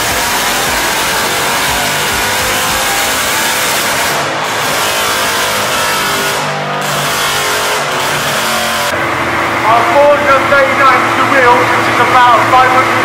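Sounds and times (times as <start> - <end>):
car engine revving loud: 0.0 - 13.0.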